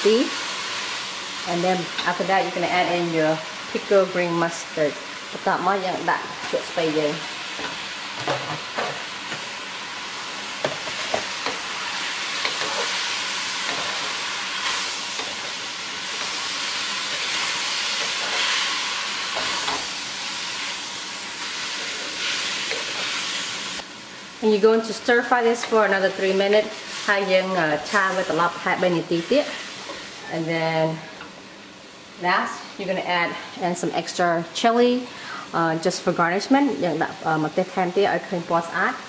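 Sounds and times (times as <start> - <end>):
food sizzling in a wok: 0.0 - 39.0
wooden spatula scraping: 10.6 - 19.9.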